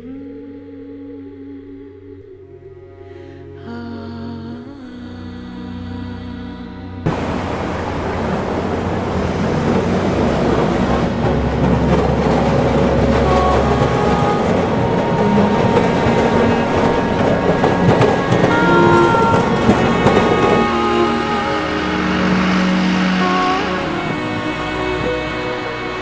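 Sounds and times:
passing road traffic: 7.0 - 26.0
tram wheels rumbling on rails: 7.0 - 26.0.

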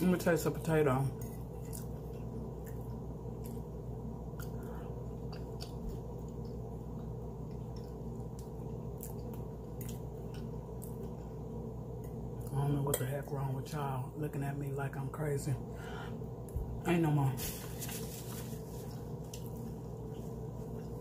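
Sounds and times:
steady low hum: 0.0 - 21.0
person chewing food: 1.2 - 12.5, 18.4 - 21.0.

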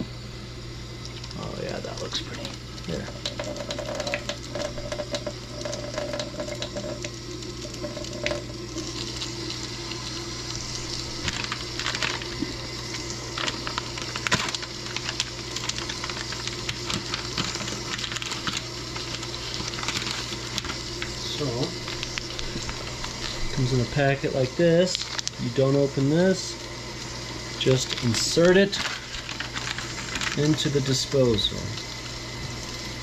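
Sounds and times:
constant low hum: 0.0 - 33.0
water trickling into sink: 0.8 - 33.0.

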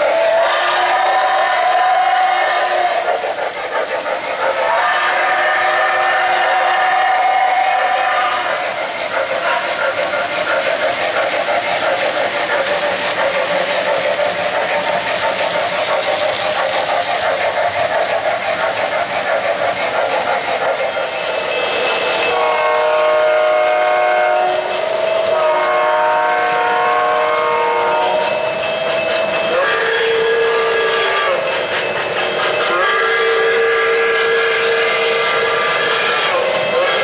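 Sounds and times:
model train cars clattering on track: 0.0 - 37.0
train horn blasts: 22.3 - 28.3, 32.7 - 35.7.

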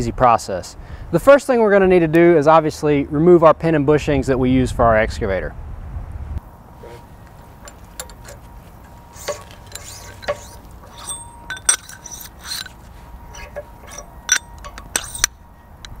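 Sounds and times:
metal pins clinking against bracket: 6.8 - 16.0.

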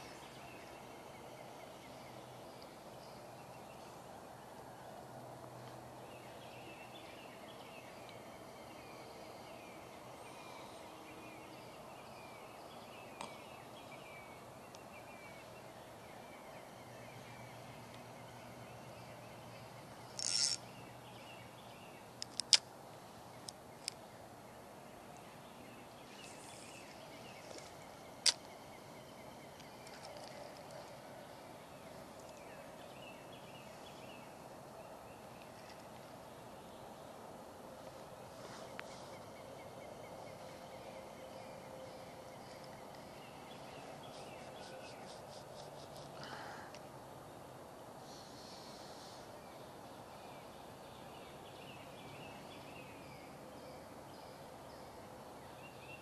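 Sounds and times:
steady low hiss: 0.0 - 56.0
small birds chirping: 5.6 - 37.2, 37.8 - 46.9
sharp clicks: 22.2 - 22.7.

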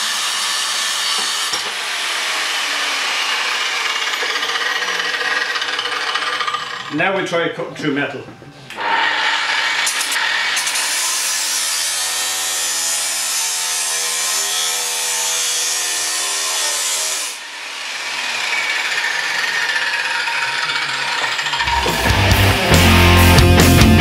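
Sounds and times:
grinder screeching through metal: 0.0 - 7.1, 8.8 - 23.3
angle grinder motor whine: 18.4 - 23.7.

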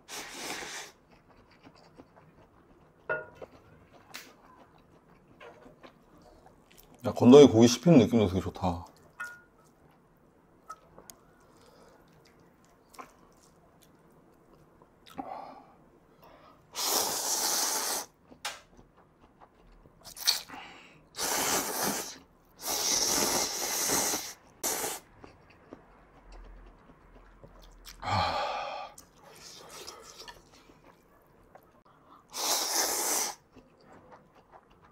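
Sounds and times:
man slurping noodles: 0.0 - 1.0, 16.8 - 18.1, 21.2 - 25.0, 32.3 - 33.4.

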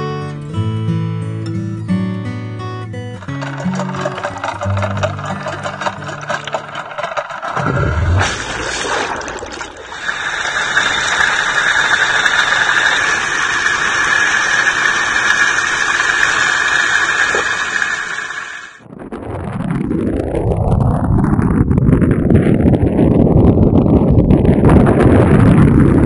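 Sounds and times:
propeller churning water: 3.1 - 18.9
outboard engine: 3.2 - 18.8
rising whine: 7.4 - 23.1.

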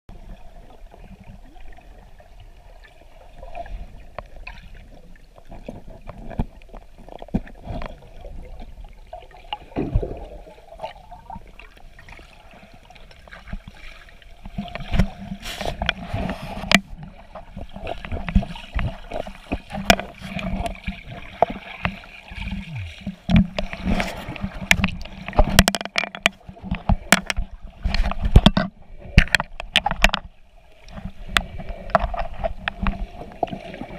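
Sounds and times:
underwater water sloshing: 0.1 - 33.9
sharp knocks and clicks: 23.0 - 24.0, 24.6 - 30.3.

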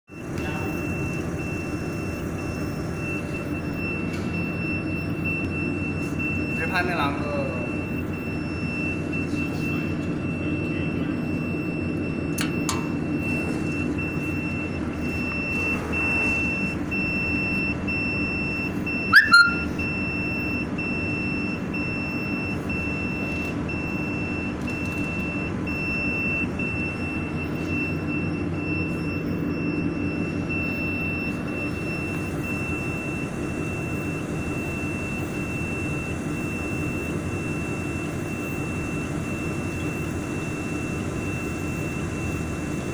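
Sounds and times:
short squeak: 19.1 - 19.7
high-pitched alarm buzzer: 19.1 - 19.8.

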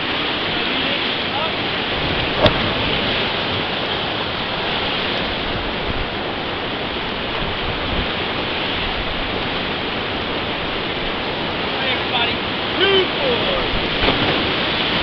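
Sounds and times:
whitewater rapids rushing: 0.0 - 15.0.

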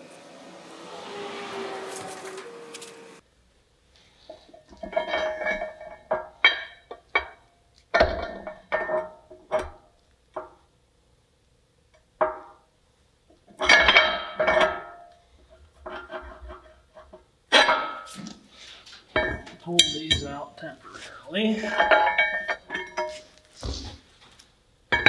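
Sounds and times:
steel bolts clanking on metal: 4.7 - 9.8, 13.6 - 15.2, 15.8 - 18.4, 19.2 - 20.6, 21.6 - 23.2.

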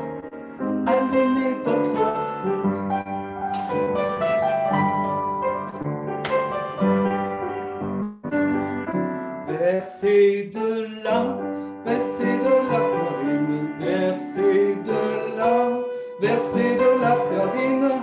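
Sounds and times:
piano accompaniment: 0.0 - 18.0
person singing slow melody: 0.8 - 3.9, 9.5 - 18.0.

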